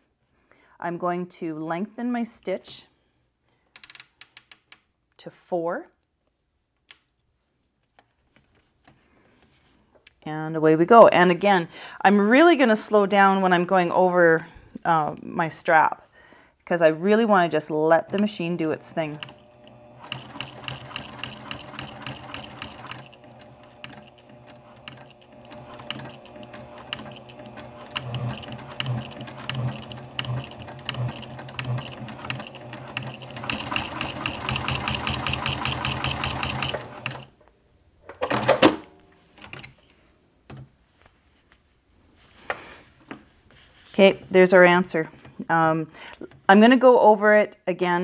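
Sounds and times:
sewing machine stitching: 18.0 - 37.3.

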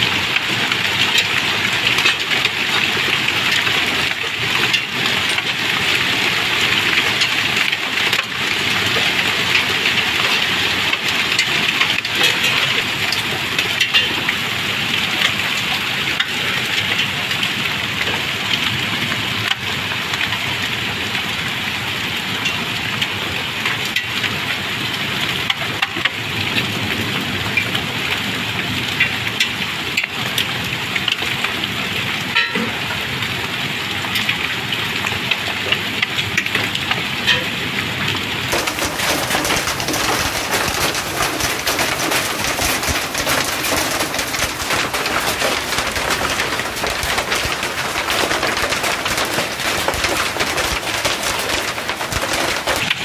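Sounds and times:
hailstones pelting the ground: 0.0 - 53.0
sharp cracks: 38.5 - 53.0.

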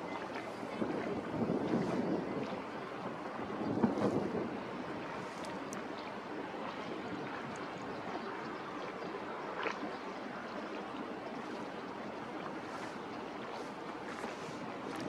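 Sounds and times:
wind noise: 0.0 - 5.8
water wash: 0.0 - 15.0.

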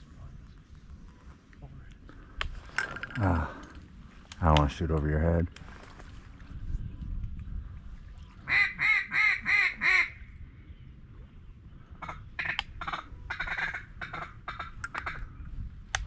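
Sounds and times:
duck call quacking: 8.5 - 10.2, 12.0 - 15.2.

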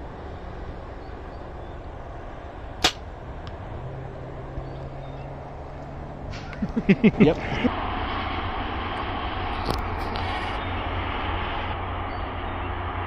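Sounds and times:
low background rumble: 0.0 - 13.0
bow string crack: 2.8 - 3.6.

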